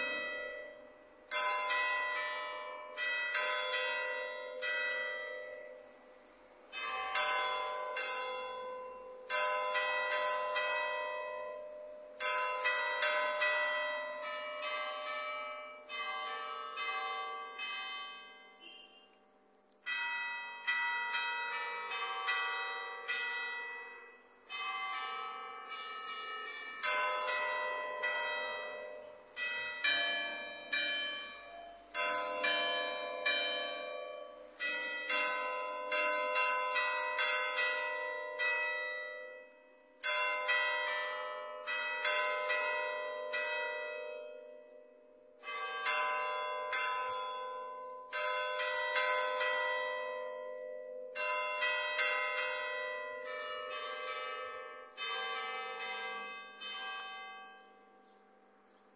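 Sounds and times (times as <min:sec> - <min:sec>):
church bells ringing a tune: 0:00.0 - 0:58.9.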